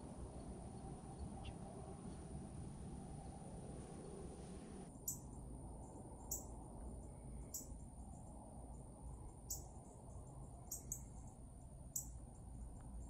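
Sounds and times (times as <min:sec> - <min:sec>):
low steady rumble: 0:00.0 - 0:13.0
insect chirps: 0:04.9 - 0:13.0.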